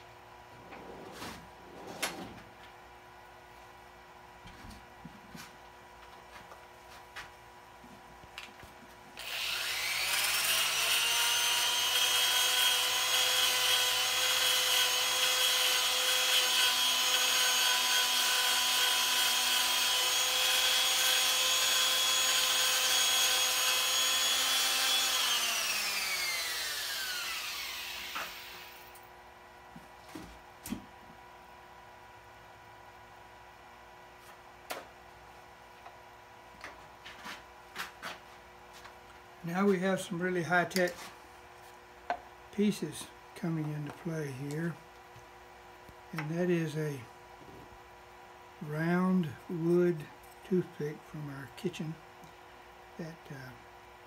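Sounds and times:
power tool whining: 0:09.2 - 0:29.0.

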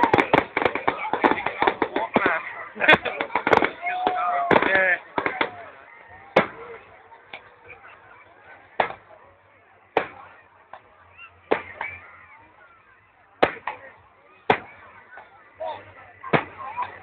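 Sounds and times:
fireworks bangs: 0:00.0 - 0:07.5, 0:08.7 - 0:09.1, 0:09.9 - 0:12.1, 0:13.4 - 0:15.3, 0:16.2 - 0:17.0
faint fireworks pops: 0:00.0 - 0:12.1, 0:13.4 - 0:15.5, 0:16.2 - 0:17.0.

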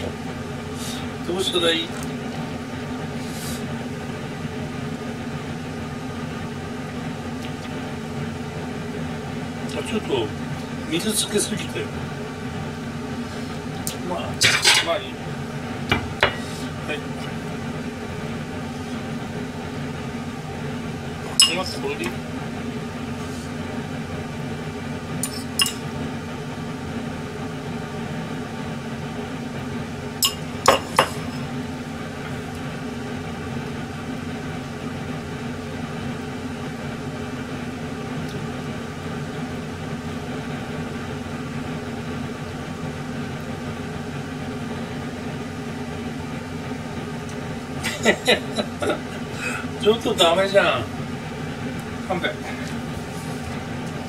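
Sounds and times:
steady low hum: 0:00.0 - 0:54.0
tableware clinking: 0:21.4 - 0:21.7, 0:25.2 - 0:25.8, 0:30.2 - 0:31.4.

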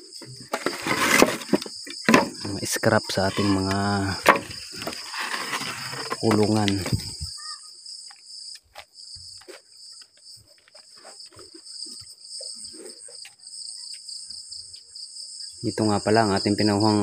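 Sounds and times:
crickets chirping: 0:00.0 - 0:17.0
footsteps and scuffs: 0:08.6 - 0:14.0.

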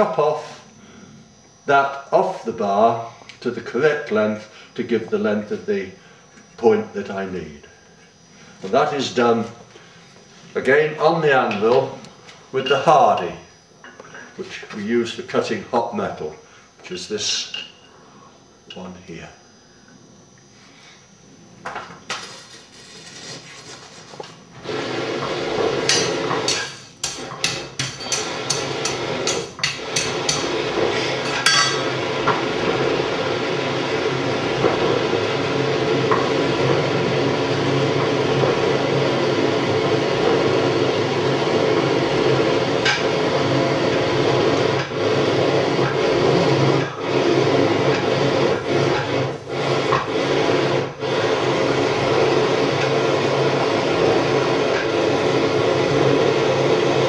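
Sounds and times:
forge air blast and flame rushing: 0:22.1 - 0:57.0.

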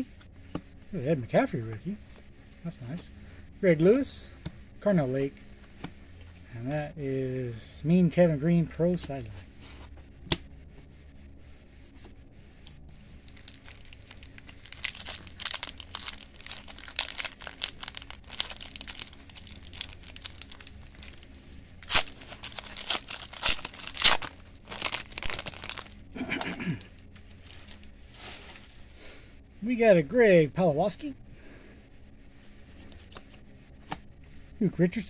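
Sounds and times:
wrapper tearing: 0:13.2 - 0:28.6
wrapper crinkling: 0:13.2 - 0:28.9.

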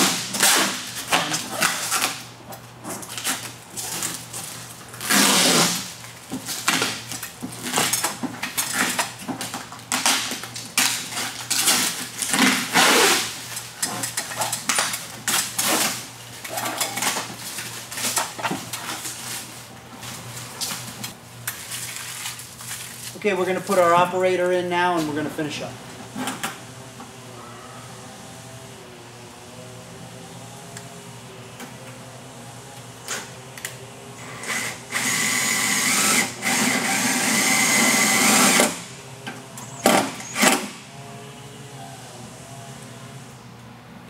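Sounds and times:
plastic film peeling and crackling: 0:00.4 - 0:02.3, 0:03.0 - 0:23.8.

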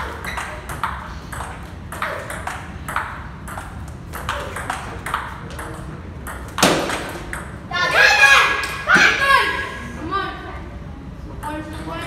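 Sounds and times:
table tennis ball clicking: 0:00.2 - 0:07.5.

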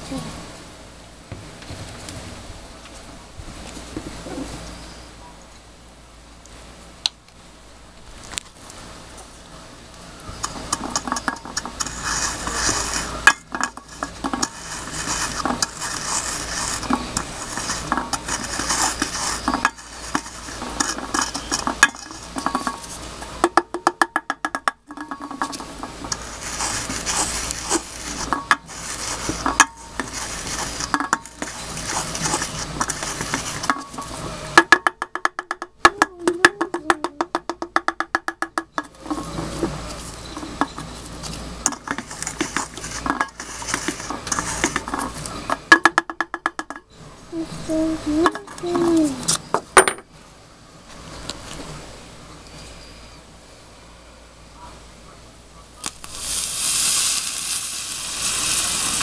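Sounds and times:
pestle grinding in metal can: 0:10.3 - 0:46.9, 0:48.2 - 0:49.0, 0:55.8 - 0:59.0.

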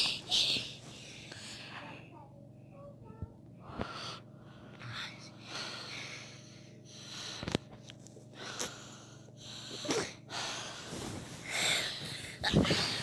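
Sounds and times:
child breathing: 0:03.6 - 0:07.6, 0:08.3 - 0:13.0.

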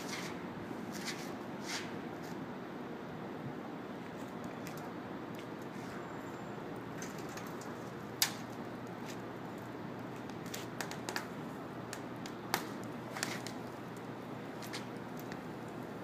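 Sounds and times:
foam popping and crackling: 0:07.0 - 0:15.8.

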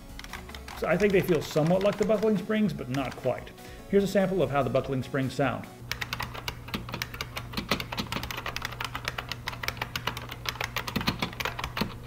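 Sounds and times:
fast mechanical keyboard typing: 0:00.0 - 0:03.5, 0:05.9 - 0:12.0.

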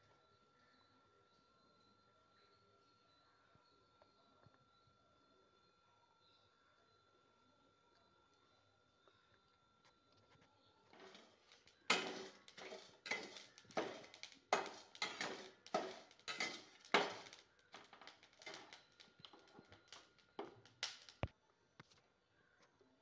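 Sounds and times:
spatula scraping spices in pan: 0:11.0 - 0:21.2.

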